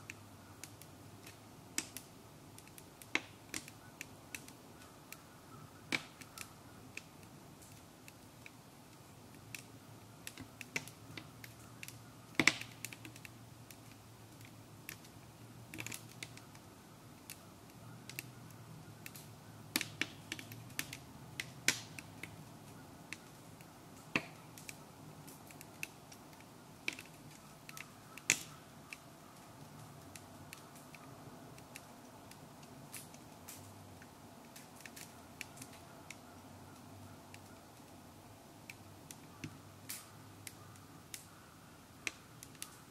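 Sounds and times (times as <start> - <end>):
wood fire crackling: 0.0 - 42.9.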